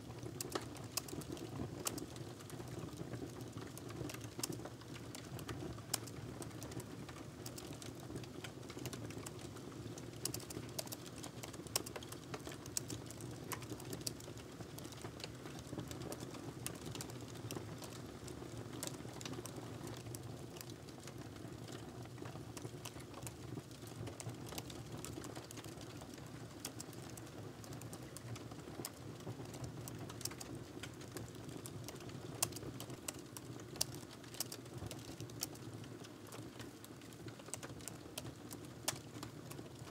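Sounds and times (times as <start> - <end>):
typing on laptop keyboard: 5.2 - 18.0.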